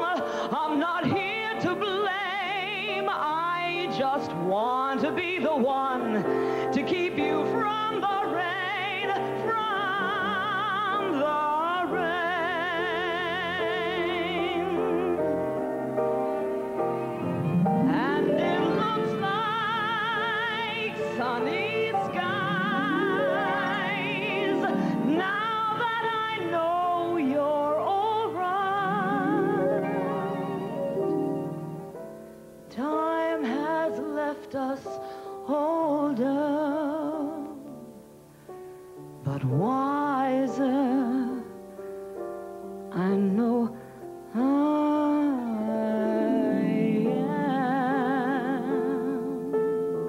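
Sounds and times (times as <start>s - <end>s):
woman singing with vibrato: 0.0s - 15.6s, 17.7s - 30.7s, 32.7s - 38.0s, 39.2s - 41.6s, 42.9s - 49.5s
grand piano accompaniment: 0.0s - 50.0s.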